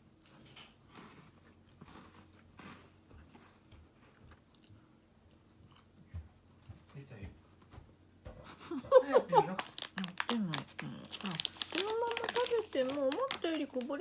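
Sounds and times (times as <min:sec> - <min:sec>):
chocolate bar crunching: 0:09.5 - 0:14.0.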